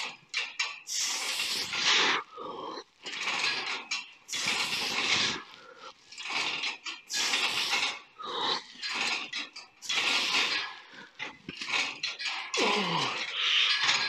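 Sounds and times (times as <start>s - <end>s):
man breathing hard and grunting: 1.9s - 2.9s, 7.2s - 8.7s, 12.6s - 13.8s.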